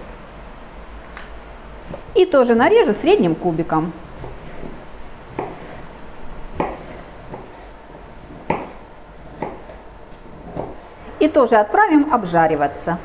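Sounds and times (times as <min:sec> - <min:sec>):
knife knocking on cutting board: 0:05.3 - 0:05.7, 0:06.6 - 0:07.5, 0:08.4 - 0:08.8.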